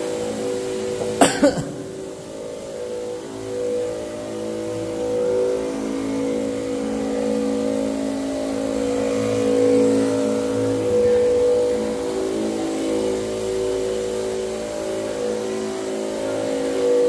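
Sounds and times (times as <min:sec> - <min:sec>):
electric pump humming: 0:00.1 - 0:04.0.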